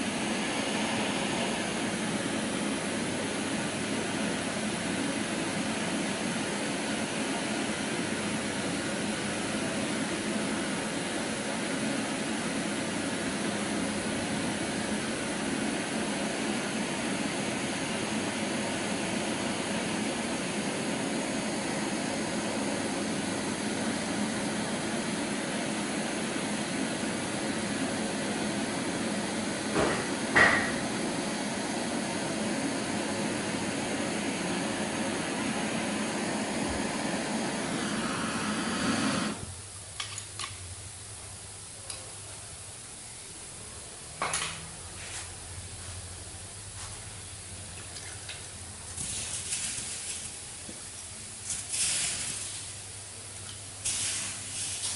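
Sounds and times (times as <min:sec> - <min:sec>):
gas torch hissing: 0:29.5 - 0:39.6, 0:48.9 - 0:54.9.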